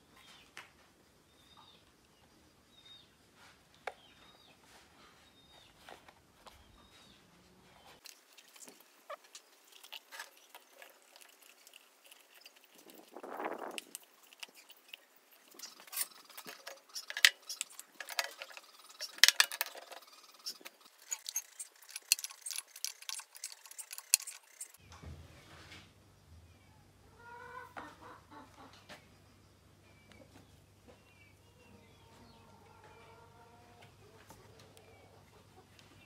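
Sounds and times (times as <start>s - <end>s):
bird calls: 13.2s - 24.8s.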